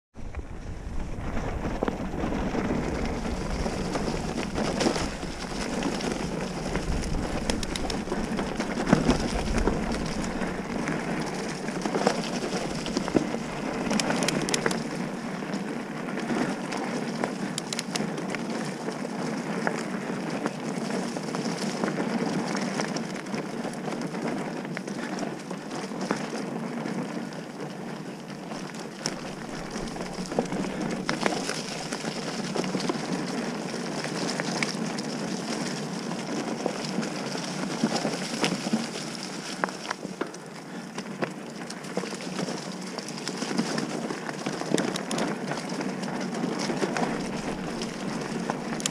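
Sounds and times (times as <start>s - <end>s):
bike rattling: 0.2s - 48.9s
tyres crunching over dirt: 0.2s - 48.9s
bike knocking over bumps: 0.3s - 15.1s.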